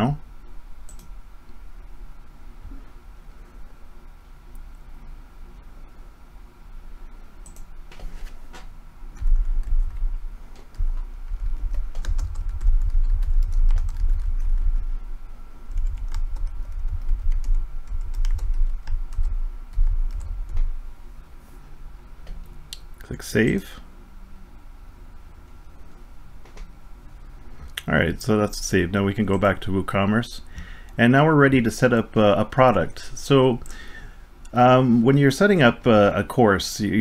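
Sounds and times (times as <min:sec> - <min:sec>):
low rumble: 0:09.2 - 0:21.0.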